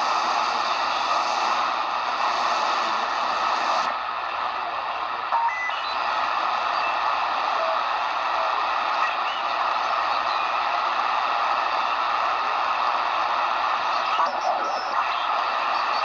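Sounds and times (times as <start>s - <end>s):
radio static hiss: 0.0s - 16.0s.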